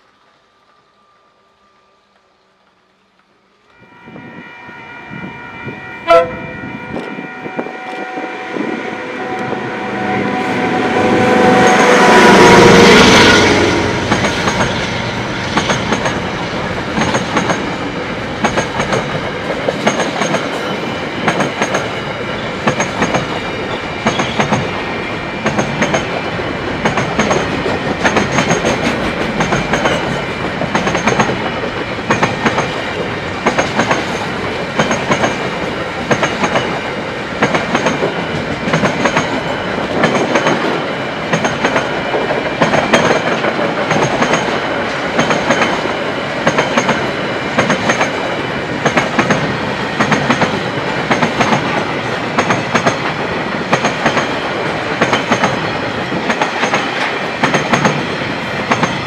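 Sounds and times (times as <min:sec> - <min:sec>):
locomotive horn blast: 0:03.7 - 0:14.2
freight train wagons clattering: 0:13.9 - 0:24.8, 0:25.4 - 0:59.0.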